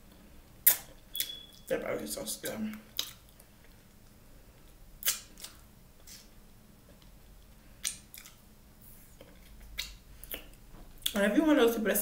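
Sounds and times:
wet mouth smacks: 0.6s - 1.4s, 3.0s - 3.4s, 5.0s - 6.3s, 7.8s - 8.4s, 9.2s - 11.2s.

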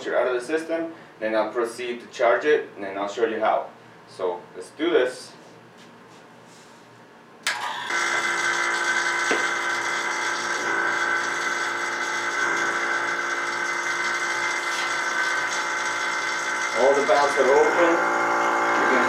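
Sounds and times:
vacuum pump humming and whining: 5.7s - 19.0s.

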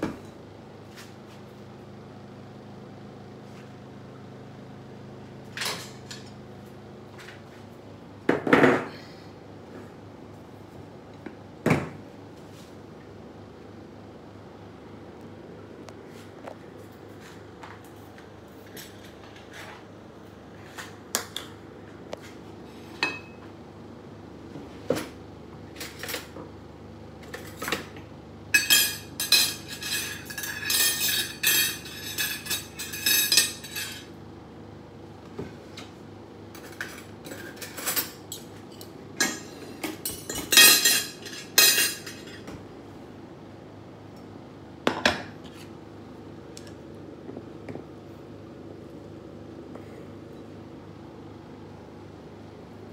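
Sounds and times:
dishes and cutlery clinking: 28.6s - 34.1s, 36.6s - 42.5s.

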